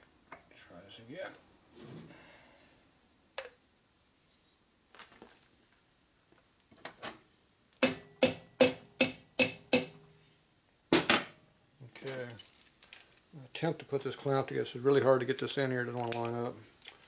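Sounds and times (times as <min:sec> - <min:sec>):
hammer tapping on metal: 0:07.8 - 0:10.0.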